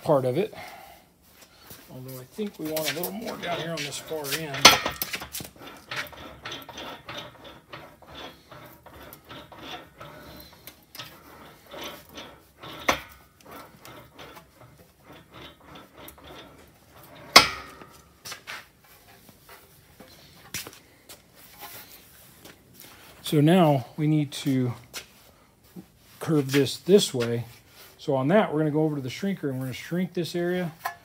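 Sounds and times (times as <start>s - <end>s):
metal sheet rasping between wheels: 2.0s - 20.6s
sharp metallic clanks: 3.2s - 18.1s.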